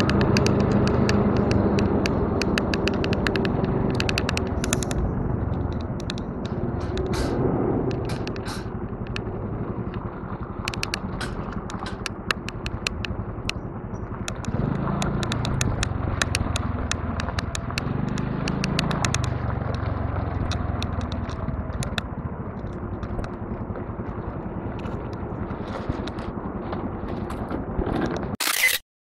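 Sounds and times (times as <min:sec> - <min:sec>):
sharp clicks: 0:00.0 - 0:09.3, 0:10.6 - 0:23.4, 0:28.3 - 0:28.8
scooter engine running: 0:00.0 - 0:28.3.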